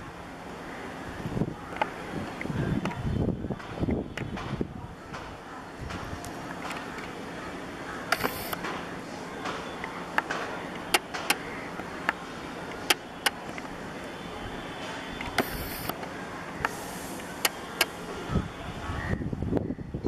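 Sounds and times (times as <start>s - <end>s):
outdoor background noise: 0.0s - 20.0s
sharp clicks: 8.1s - 8.8s
short hiss: 16.7s - 17.5s.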